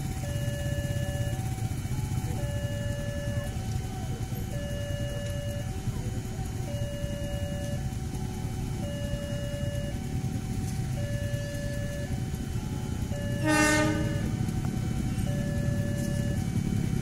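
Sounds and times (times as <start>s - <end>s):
two-note crossing alarm chime: 8.8s - 10.0s, 10.9s - 14.4s, 15.2s - 16.5s
locomotive horn blast: 13.1s - 14.4s.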